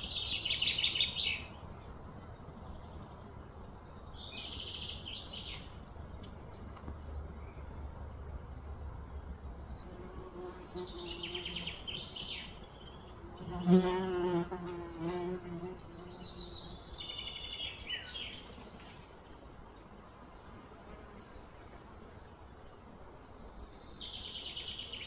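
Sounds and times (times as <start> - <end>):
birds chirping: 0.0 - 25.0
fly buzzing: 13.2 - 16.6.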